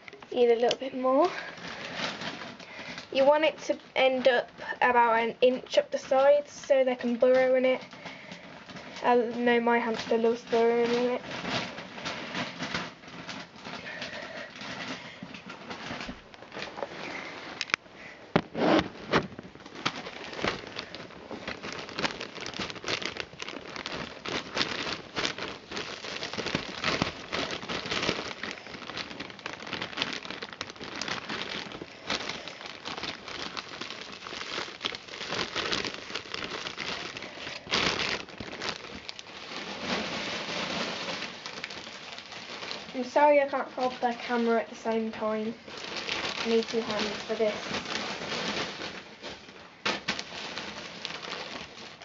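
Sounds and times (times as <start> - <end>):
plastic bag crinkling: 0.0 - 52.0
wood shavings rustling: 1.3 - 3.4, 19.0 - 52.0.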